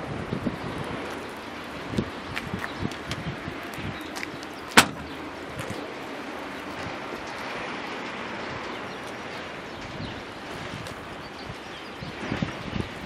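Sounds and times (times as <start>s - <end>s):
steady wind noise: 0.0s - 13.0s
car trunk slamming shut: 4.7s - 5.1s.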